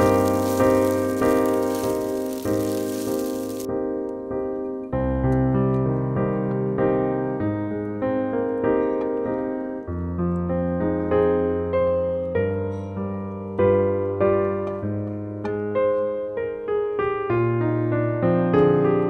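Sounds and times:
piano music: 0.0 - 14.9.

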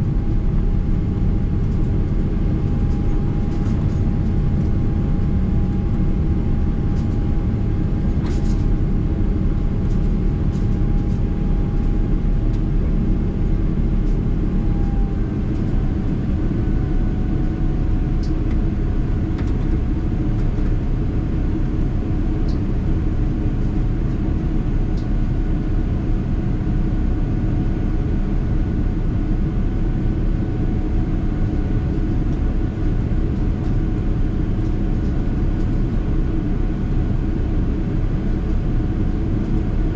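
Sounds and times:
jet engines rushing and rumbling: 0.0 - 25.1
steady whine: 0.0 - 25.5.

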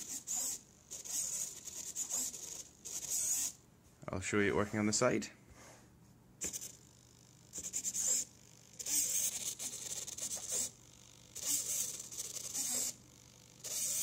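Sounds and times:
servo whirring: 0.0 - 3.6, 7.5 - 13.0, 13.6 - 14.0.

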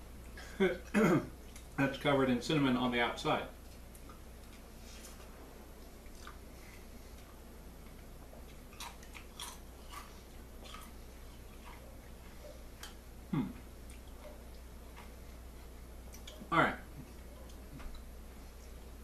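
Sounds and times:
person chewing crunchy taco shell: 5.8 - 13.0.

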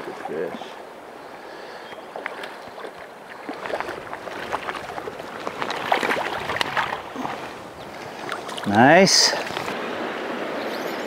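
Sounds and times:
stream current rushing: 0.0 - 11.0
fish splashing in water: 1.9 - 9.9.

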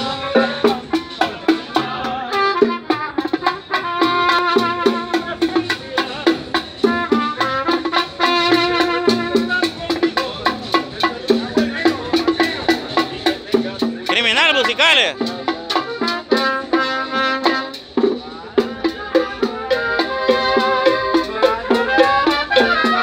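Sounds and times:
steady percussion beat: 9.6 - 15.5
trumpet playing a melody: 14.1 - 15.2.

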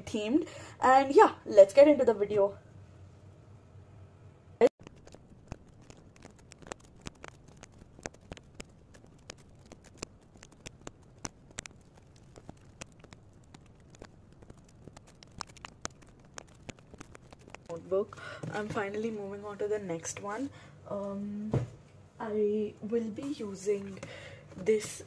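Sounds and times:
tape clicking and crackling: 4.8 - 20.3.

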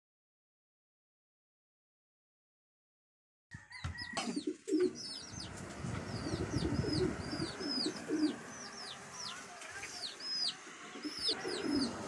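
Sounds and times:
small birds chirping: 3.7 - 12.0
doves cooing: 4.0 - 9.4, 10.1 - 12.0.

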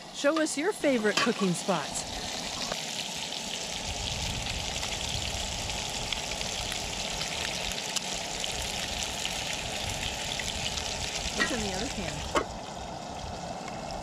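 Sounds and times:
patties sizzling in a skillet: 0.1 - 14.0
crackles and pops of hot fat: 2.2 - 12.6.

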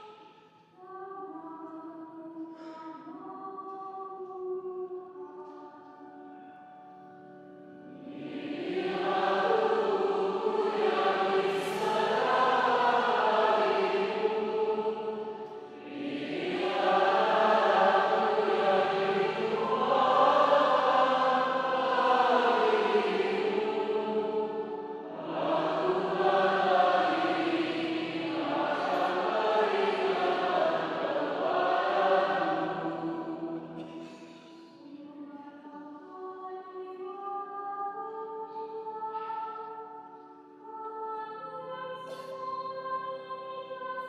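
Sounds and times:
woman singing into a microphone: 34.6 - 44.0.

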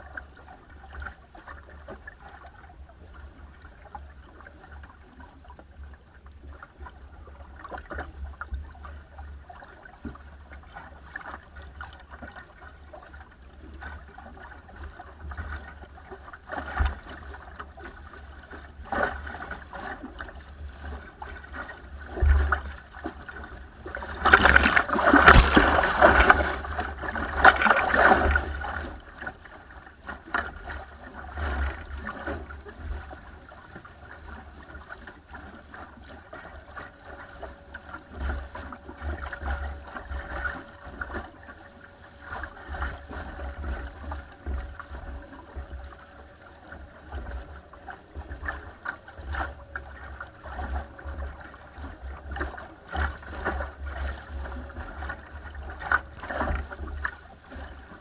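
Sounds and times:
water slapping along hull: 0.0 - 58.0
water splash over camera: 16.5 - 29.5.

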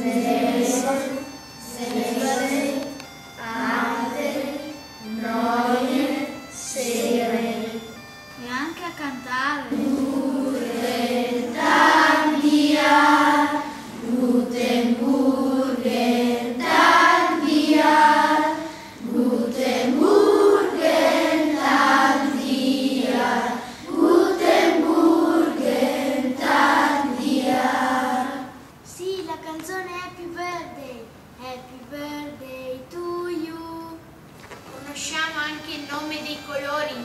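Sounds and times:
children singing in unison: 0.0 - 8.0, 9.7 - 28.6.

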